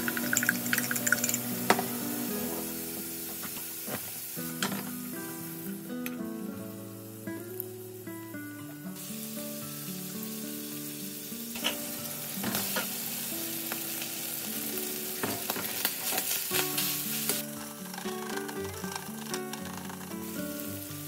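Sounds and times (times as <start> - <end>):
egg sizzling in hot oil: 0.0 - 5.9, 9.0 - 21.0
rice stir-frying: 0.0 - 21.0
spatula scraping a pan: 16.0 - 20.7.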